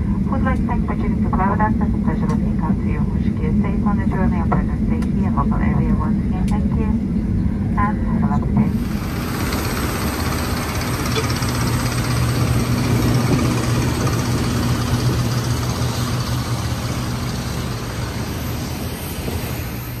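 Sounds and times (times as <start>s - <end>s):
machinery humming: 0.0s - 20.0s
faint high whine: 8.7s - 20.0s.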